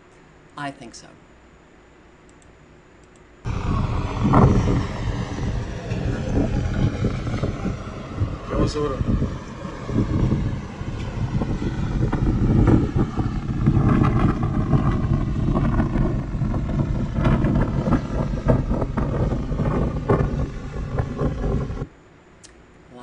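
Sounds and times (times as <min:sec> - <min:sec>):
strong wind buffeting microphone: 0:03.5 - 0:21.9.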